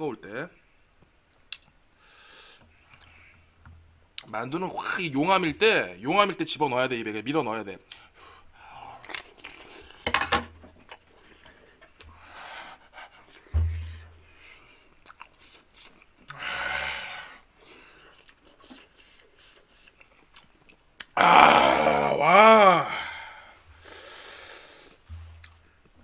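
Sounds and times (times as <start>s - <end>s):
man chewing: 8.9s - 10.0s, 10.8s - 12.1s, 14.9s - 16.4s, 17.6s - 21.2s, 24.8s - 25.6s
short low thump: 13.6s - 14.1s
open-mouthed huffs of breath: 22.8s - 25.1s.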